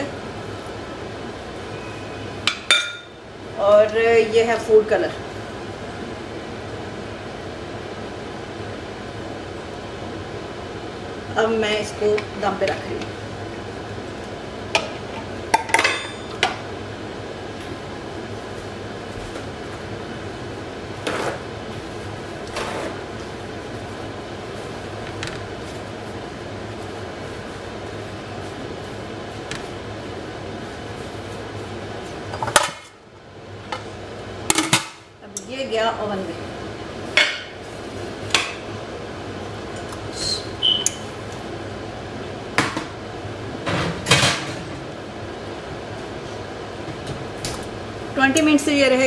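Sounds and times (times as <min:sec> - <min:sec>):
fan hum: 0:00.0 - 0:49.0.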